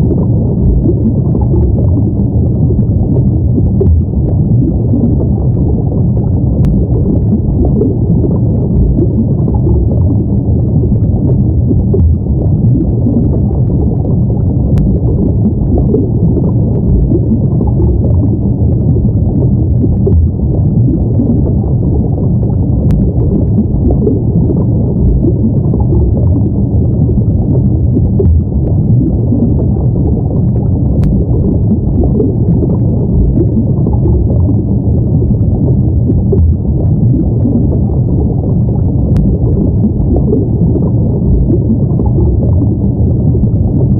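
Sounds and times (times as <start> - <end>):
deep underwater rumble: 0.0 - 43.9.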